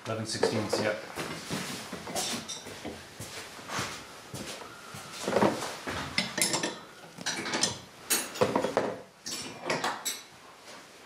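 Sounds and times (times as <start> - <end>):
metal tools clicking and scraping: 6.2 - 8.5.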